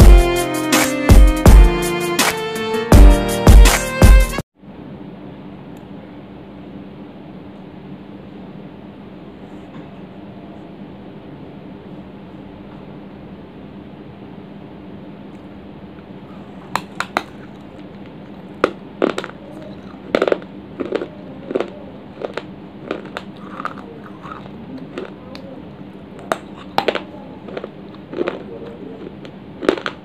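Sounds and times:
steady low hum: 4.6s - 30.0s
clay crunching being chewed: 16.3s - 30.0s.

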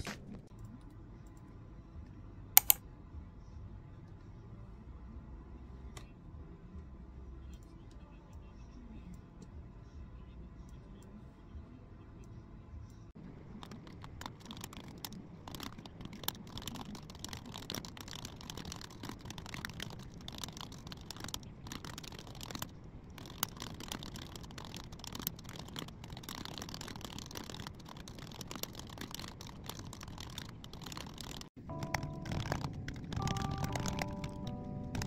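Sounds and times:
small objects clicking and rustling: 13.3s - 35.0s.

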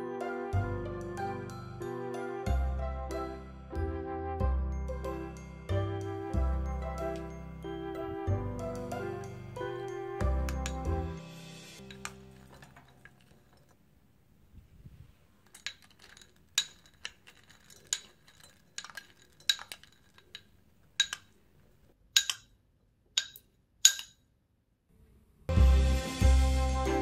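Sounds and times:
spoon and dish clinking on glass jar: 9.1s - 11.0s, 11.8s - 13.8s, 15.5s - 21.3s, 22.2s - 22.5s, 23.2s - 24.2s
dried fruit dropping into jar: 11.8s - 13.8s, 15.4s - 21.3s.

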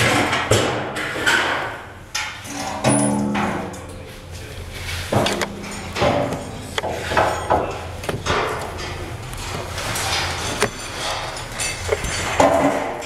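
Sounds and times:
steel panels knocking and clattering: 0.0s - 4.1s, 5.1s - 13.0s
metallic ringing: 2.4s - 4.5s, 5.4s - 13.0s.

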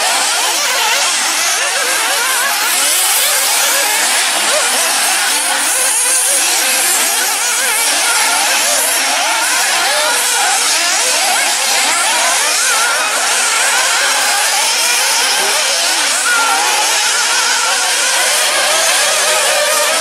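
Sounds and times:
rc buggy engines buzzing: 0.0s - 20.0s.

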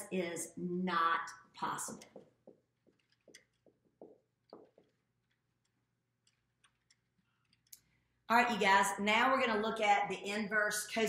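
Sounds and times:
marker squeaking on whiteboard: 1.9s - 7.7s.

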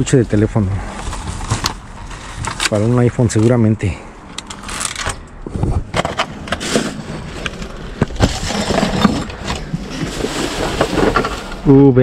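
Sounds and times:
plastic bags and boxes rustling: 5.9s - 12.0s.

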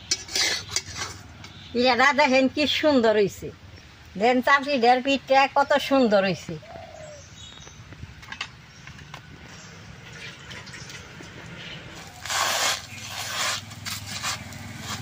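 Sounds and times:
batter sizzling on wok: 0.0s - 1.3s.

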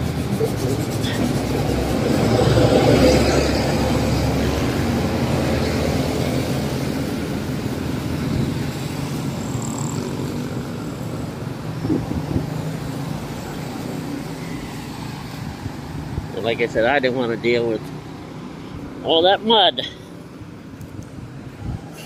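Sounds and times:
coach engine rumble: 0.0s - 5.4s
distant traffic on wet road: 0.0s - 21.5s.

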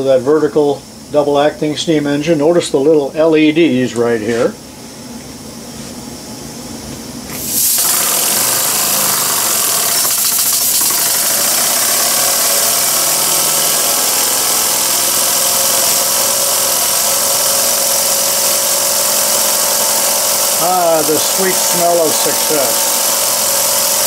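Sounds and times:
steam hiss: 7.4s - 24.0s
model steam engine running: 7.5s - 24.0s.

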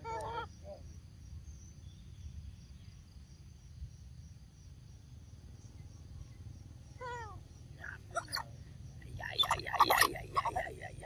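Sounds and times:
high-pitched insect drone: 7.8s - 11.0s.

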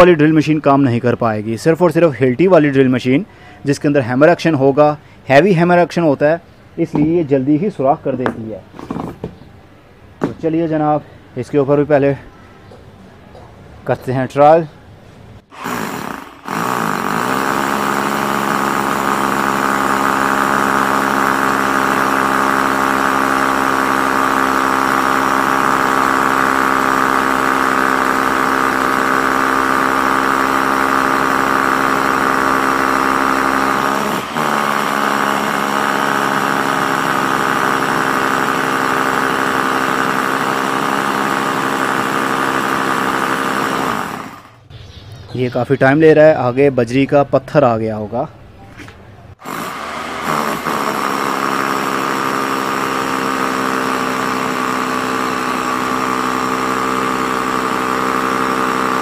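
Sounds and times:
hammer drill drilling into concrete: 15.5s - 44.6s, 49.4s - 59.0s.

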